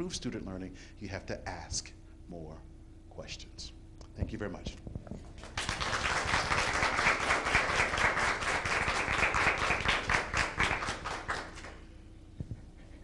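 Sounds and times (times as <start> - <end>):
audience applauding: 5.4 - 11.8.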